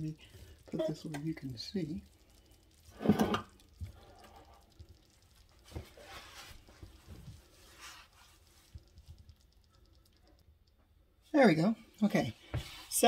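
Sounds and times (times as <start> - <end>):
soft rustling: 0.1 - 10.2, 11.8 - 13.0
pot scraping on stovetop: 2.9 - 3.6.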